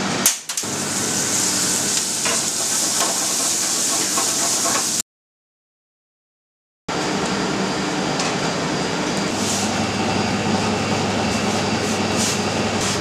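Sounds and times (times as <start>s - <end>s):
extractor hood drone with low hum: 6.9s - 13.0s.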